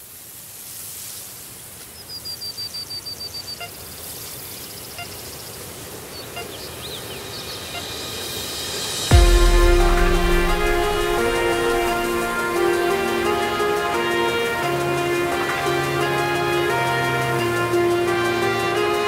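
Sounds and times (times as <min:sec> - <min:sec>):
steady outdoor hiss: 0:00.0 - 0:19.0
high bird chirps: 0:04.4 - 0:08.0.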